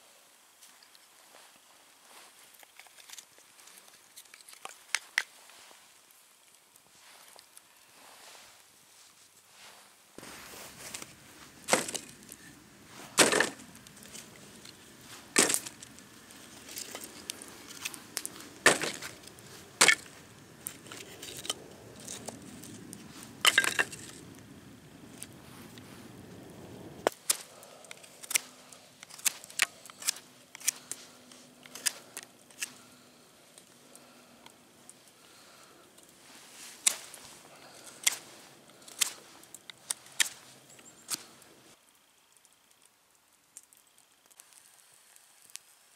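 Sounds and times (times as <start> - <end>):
firewood landing in wire basket: 10.2 - 22.4, 23.4 - 24.2.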